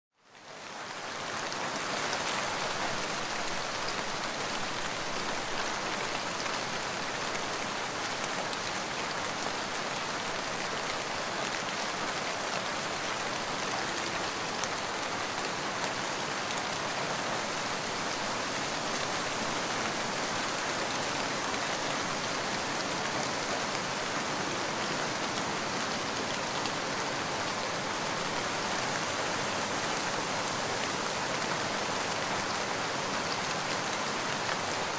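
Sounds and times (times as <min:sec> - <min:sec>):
steady rain falling: 0:00.1 - 0:34.9.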